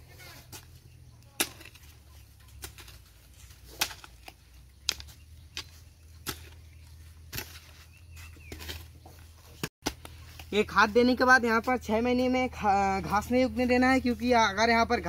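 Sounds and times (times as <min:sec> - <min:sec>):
hand hoe chopping into soil: 0:00.5 - 0:10.6.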